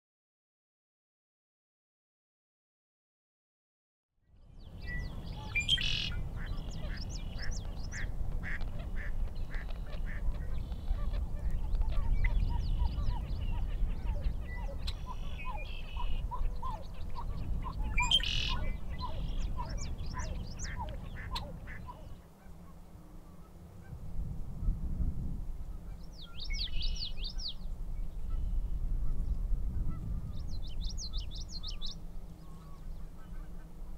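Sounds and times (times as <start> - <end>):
blackbird singing: 4.6 - 8.1, 9.4 - 22.2, 26.0 - 28.8, 30.3 - 33.5
bird chirps and calls: 4.6 - 22.2, 26.0 - 29.4, 30.3 - 33.5.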